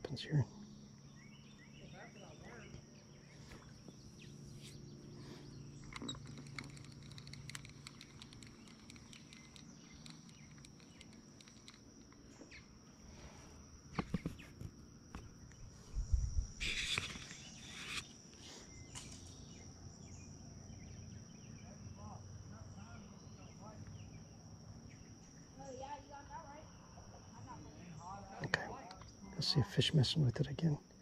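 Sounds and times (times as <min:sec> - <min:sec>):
insects trilling: 0:00.0 - 0:31.0
faint clicks: 0:05.8 - 0:12.4.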